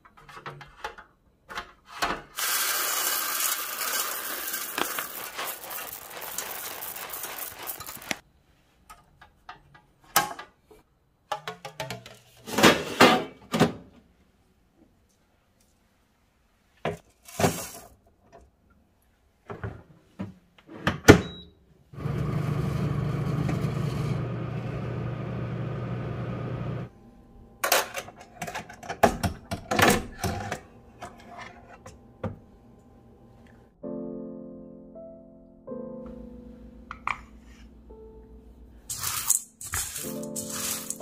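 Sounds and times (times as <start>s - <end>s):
oven whirring: 22.0s - 26.9s
music: 33.4s - 41.0s.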